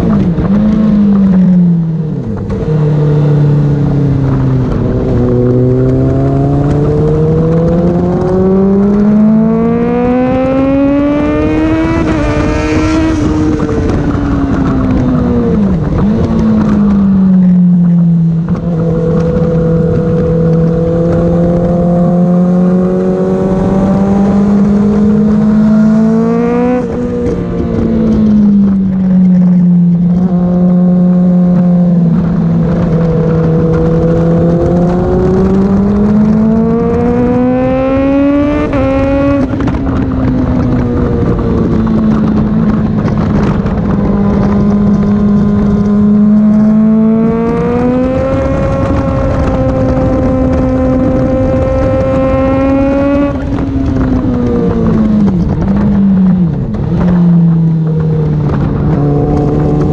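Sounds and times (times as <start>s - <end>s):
motorcycle engine revving: 0.0s - 59.9s
wind noise: 0.0s - 59.9s.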